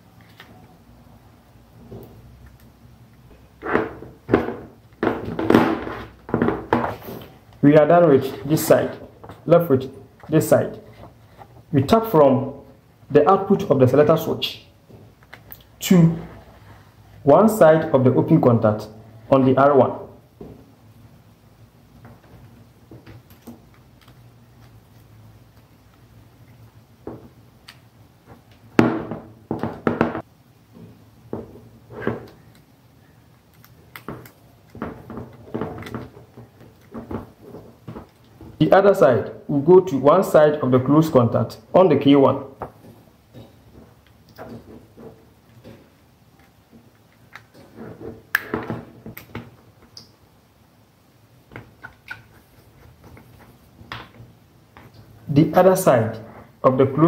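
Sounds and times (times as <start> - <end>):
plastic knocks and rattles: 3.6 - 7.0, 28.2 - 32.4, 34.0 - 38.6.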